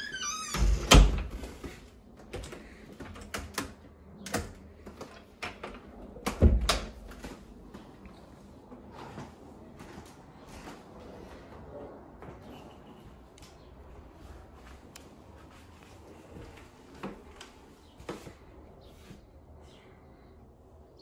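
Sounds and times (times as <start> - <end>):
door shutting with heavy thud: 0.0 - 1.6.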